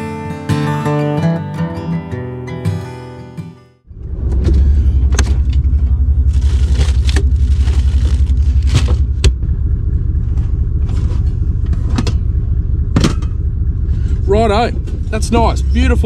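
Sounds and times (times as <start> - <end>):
diesel engine idling: 3.9 - 16.0
plastic bag rustling: 5.4 - 9.2.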